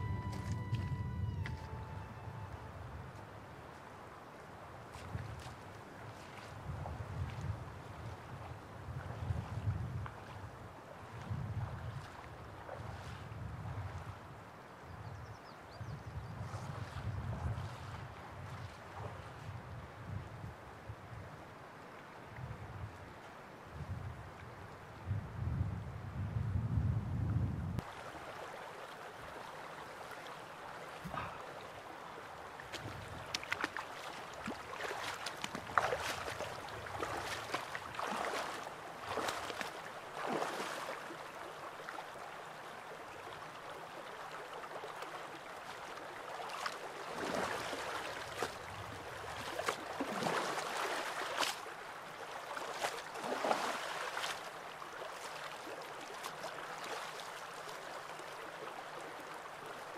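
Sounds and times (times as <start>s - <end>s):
water splashing and sloshing: 0.0s - 14.4s, 16.4s - 19.6s, 27.8s - 59.9s
river running over rocks: 27.8s - 59.9s.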